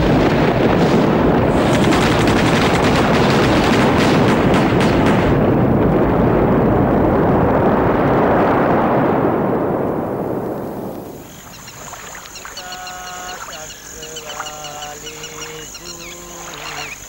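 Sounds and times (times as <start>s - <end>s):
rapid gunfire: 0.0s - 5.6s
explosion rumble: 0.0s - 11.3s.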